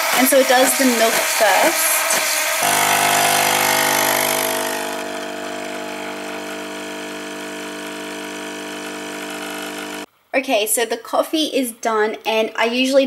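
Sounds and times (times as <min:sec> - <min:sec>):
milk frother hissing: 0:00.0 - 0:10.1
coffee machine pump humming: 0:02.2 - 0:10.1.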